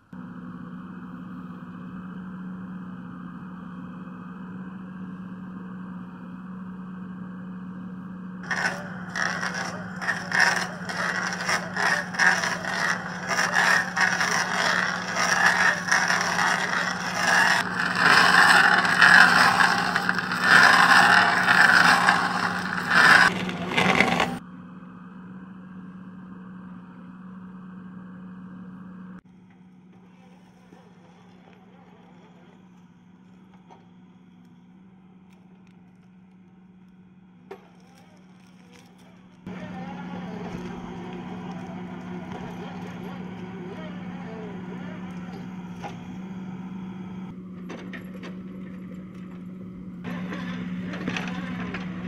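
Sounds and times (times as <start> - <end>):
backhoe engine running: 0.0 - 52.0
wood cracking and splintering: 8.4 - 24.4.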